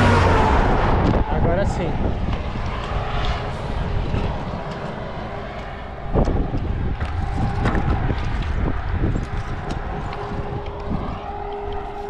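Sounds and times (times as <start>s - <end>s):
truck: 0.0s - 1.3s
wind rumbling on microphone: 0.0s - 12.0s.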